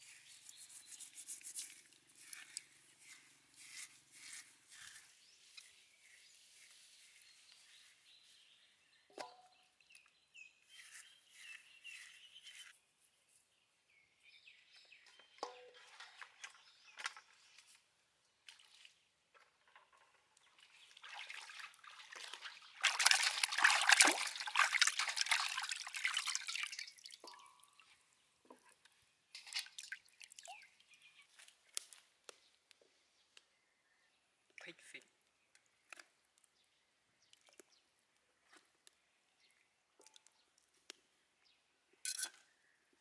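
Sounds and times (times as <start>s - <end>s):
wet scrubbing with steel wool: 0.0s - 8.0s
water splashing in metal bowl: 20.9s - 27.9s, 29.4s - 30.9s.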